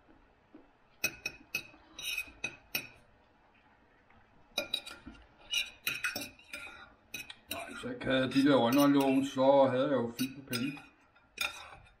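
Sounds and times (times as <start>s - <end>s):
knife and fork clinking on plate: 4.6s - 9.3s, 10.1s - 12.0s.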